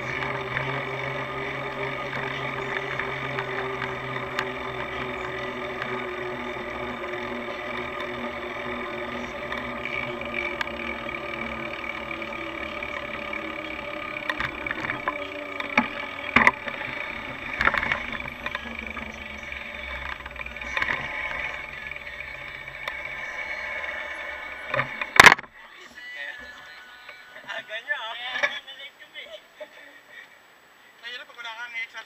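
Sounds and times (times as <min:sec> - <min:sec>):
sharp knocks and rattles: 0:00.0 - 0:25.5
traffic and road noise: 0:00.0 - 0:25.5.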